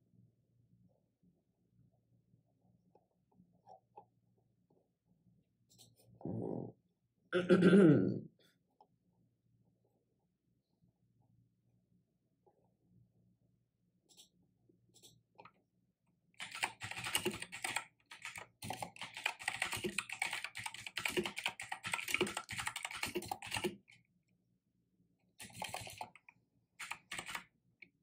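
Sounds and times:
typing on computer keyboard: 0:16.4 - 0:24.0, 0:25.4 - 0:27.5.

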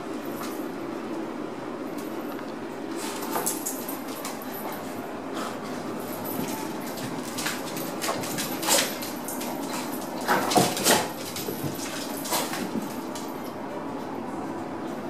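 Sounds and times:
dogs scuffling: 0:02.9 - 0:13.5.

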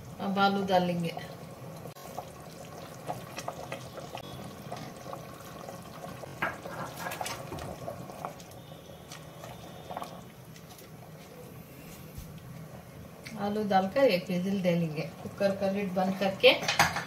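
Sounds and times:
liquid sloshing in a pot: 0:01.6 - 0:11.2.

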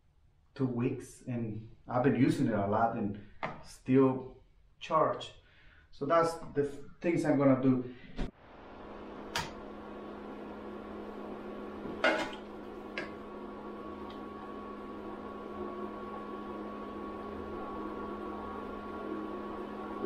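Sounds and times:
welding machine humming: 0:08.6 - 0:20.0.

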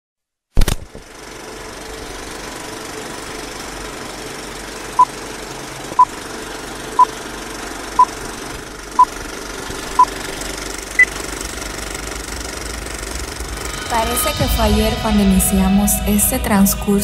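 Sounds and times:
film projector clatter: 0:00.6 - 0:13.4.

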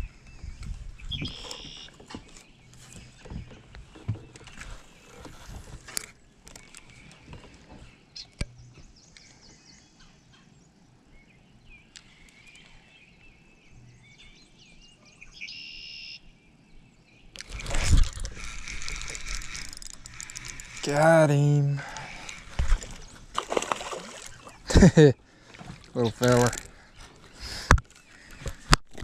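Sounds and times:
birds chirping: 0:00.0 - 0:29.0
fishing tackle clicks: 0:17.4 - 0:20.8, 0:21.9 - 0:23.6, 0:26.3 - 0:26.7
loud rustling noise: 0:17.5 - 0:20.8.

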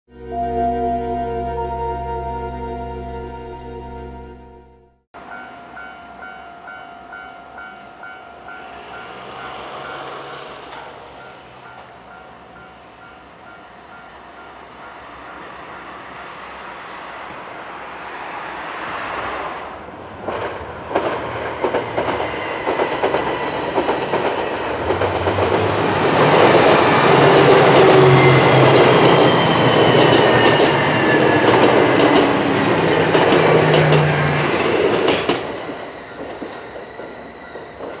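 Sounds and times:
level crossing warning bell: 0:00.1 - 0:16.9
train whine: 0:00.1 - 0:38.0
wheels clacking over rail joints: 0:20.2 - 0:38.0.

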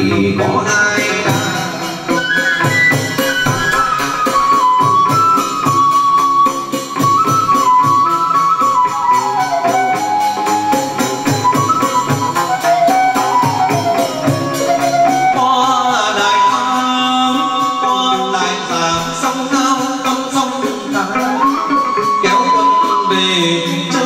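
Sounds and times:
person singing: 0:00.0 - 0:02.7, 0:15.0 - 0:24.0
lute playing: 0:00.0 - 0:24.0
percussion beat: 0:00.0 - 0:24.0.

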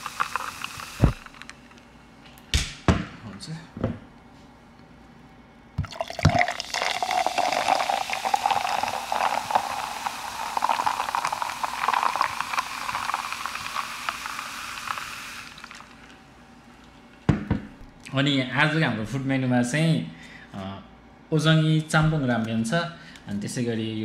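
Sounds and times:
soda fizzing poured over ice: 0:00.0 - 0:01.5, 0:05.9 - 0:16.1.

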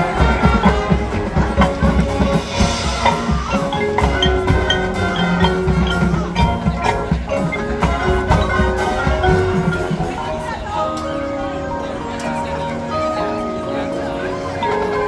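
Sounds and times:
drum hits: 0:00.0 - 0:10.2
mallet percussion: 0:00.0 - 0:15.0
marching band playing: 0:00.0 - 0:15.0.

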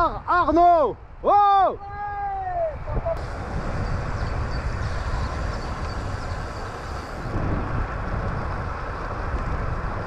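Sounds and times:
wind on microphone: 0:01.8 - 0:10.0
bicycle tyre road noise: 0:03.1 - 0:10.0.

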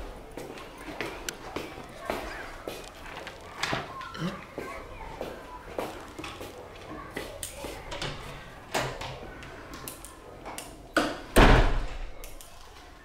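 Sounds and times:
door shutting thud: 0:11.3 - 0:12.1.

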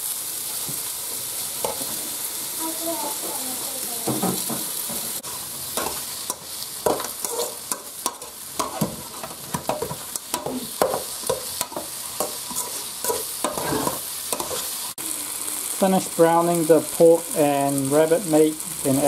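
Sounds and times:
meat sizzling in a pot: 0:00.0 - 0:19.0
metal spoon scraping a pot: 0:05.2 - 0:11.0, 0:11.6 - 0:14.7.

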